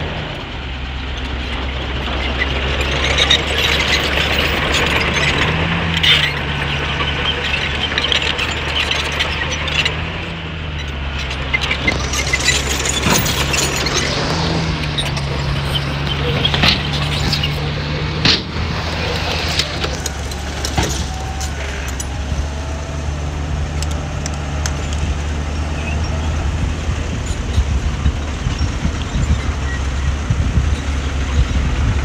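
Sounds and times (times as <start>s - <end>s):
diesel engine humming: 0.0s - 32.0s
metallic clanks: 1.2s - 23.0s.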